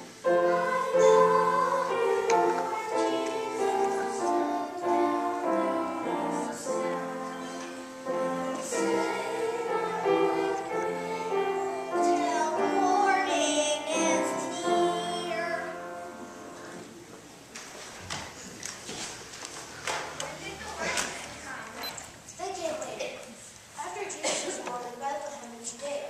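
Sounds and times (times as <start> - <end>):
children singing: 0.0 - 16.0
musical accompaniment: 0.0 - 17.0.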